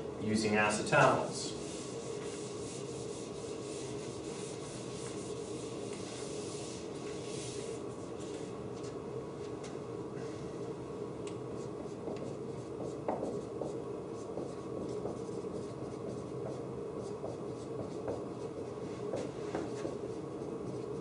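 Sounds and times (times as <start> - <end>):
room hum: 0.0 - 21.0
marker scratching on whiteboard: 1.6 - 8.5, 11.6 - 21.0
marker tapping on whiteboard: 12.0 - 18.3, 19.1 - 20.0.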